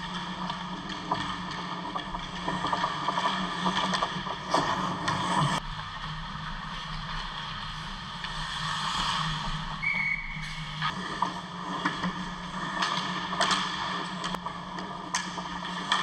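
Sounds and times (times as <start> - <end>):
hockey sticks and puck clacking: 0.0 - 5.6, 11.0 - 16.0
skates scraping ice: 0.2 - 16.0.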